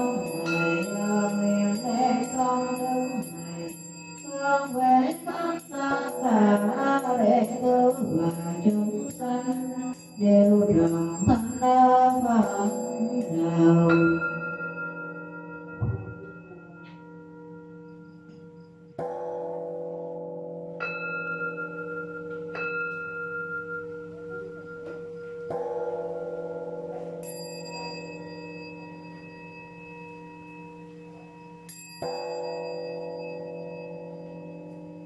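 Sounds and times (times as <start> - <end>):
small hand bell strikes: 0.0 - 18.8, 27.2 - 35.0
bowl bell ringing: 0.0 - 35.0.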